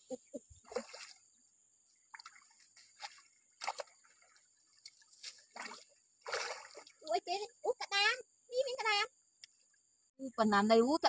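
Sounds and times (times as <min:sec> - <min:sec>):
hands splashing in stream water: 0:00.6 - 0:01.2, 0:02.0 - 0:07.0.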